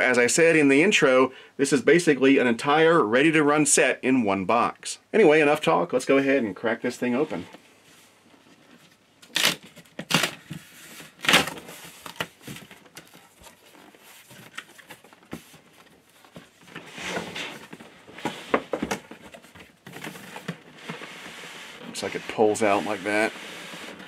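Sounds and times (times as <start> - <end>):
glued cardboard flaps ripping: 9.2 - 10.4, 11.1 - 13.2
cardboard scraping and rustling: 9.6 - 24.0.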